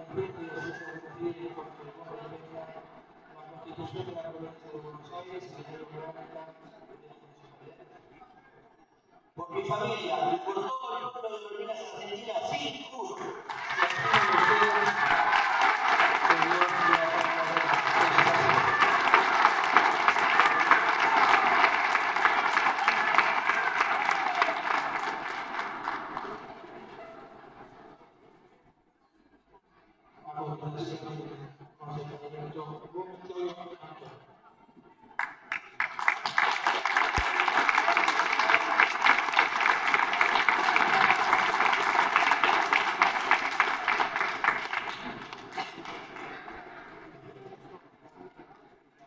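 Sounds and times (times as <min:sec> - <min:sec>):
audience applauding: 0:13.4 - 0:27.1, 0:35.2 - 0:47.1.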